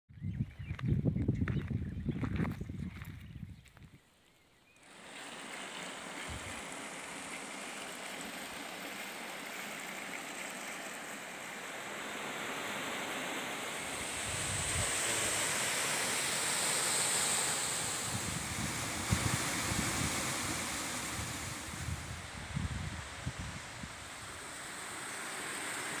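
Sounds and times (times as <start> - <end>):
waterfall rushing water: 4.8 - 26.0.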